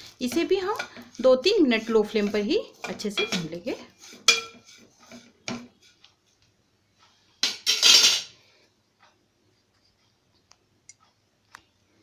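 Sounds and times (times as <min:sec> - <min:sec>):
metal spoon scraping seeds in a pan: 0:00.0 - 0:06.0.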